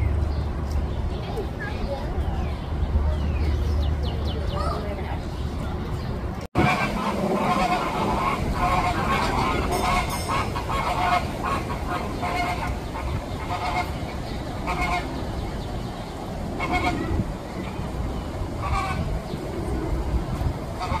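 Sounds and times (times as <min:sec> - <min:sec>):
flamingos honking: 0:06.6 - 0:15.6, 0:16.5 - 0:18.0, 0:18.6 - 0:19.4, 0:20.7 - 0:21.0.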